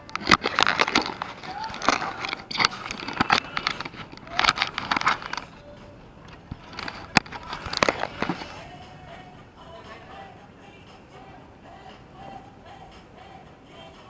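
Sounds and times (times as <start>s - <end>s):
camera handling knocks and rustles: 0.1s - 5.6s, 6.3s - 8.6s.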